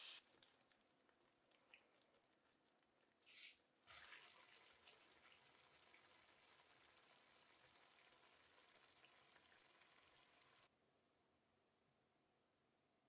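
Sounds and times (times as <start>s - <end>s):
chicken sizzling in a frying pan: 0.0s - 0.2s, 3.9s - 10.7s.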